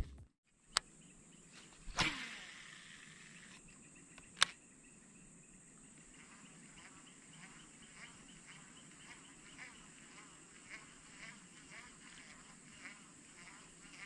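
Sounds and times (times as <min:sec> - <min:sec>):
insects chirring: 0:00.9 - 0:14.0
sharp click: 0:03.5 - 0:04.6.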